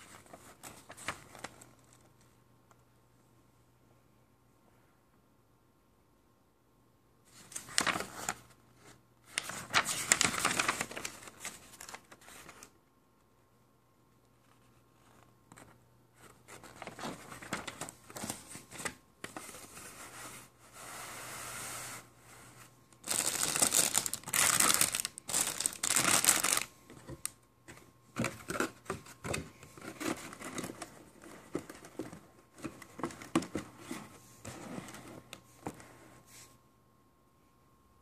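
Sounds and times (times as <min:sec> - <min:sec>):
paper sheet rustling: 0:07.3 - 0:12.7, 0:14.5 - 0:22.0, 0:23.0 - 0:27.2
plastic bags crinkling: 0:23.0 - 0:27.2.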